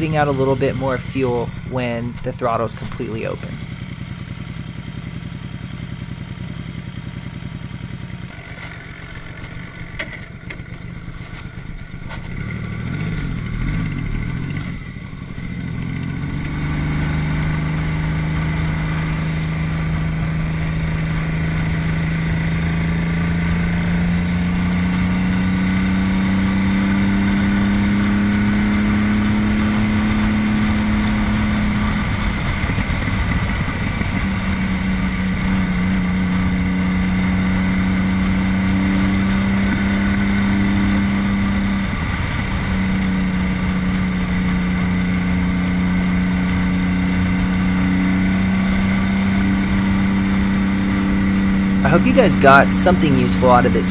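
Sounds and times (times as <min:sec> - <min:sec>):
motorcycle engine running: 0:00.0 - 0:51.9.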